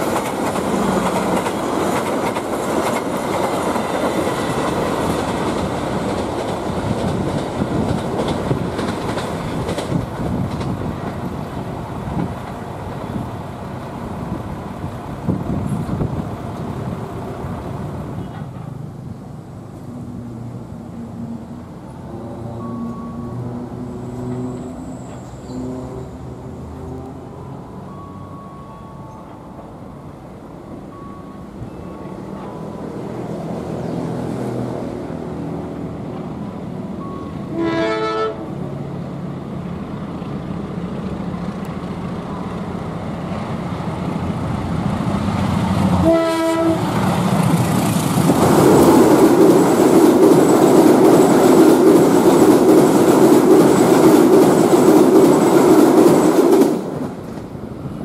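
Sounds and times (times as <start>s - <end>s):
train wheels rumbling on rail: 0.0s - 28.1s, 29.0s - 58.0s
diesel locomotive engine: 0.0s - 58.0s
train horn blasts: 22.1s - 27.6s, 37.4s - 38.6s, 46.0s - 46.9s.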